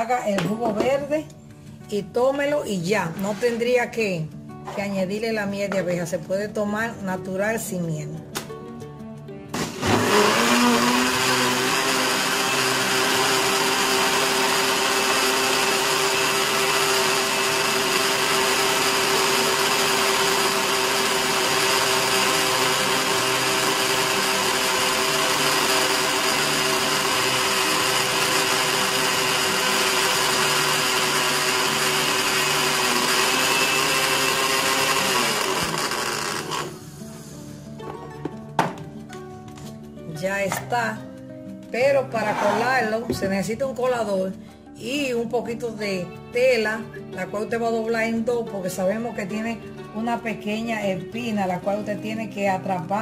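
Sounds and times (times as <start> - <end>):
electric blender running: 9.5 - 37.5.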